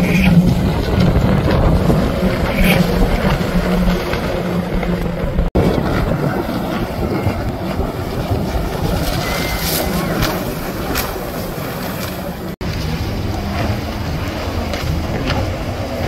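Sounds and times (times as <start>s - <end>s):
jet ski engines running: 0.0s - 16.0s
water rushing and spray: 0.0s - 16.0s
wind buffeting microphone: 0.0s - 16.0s.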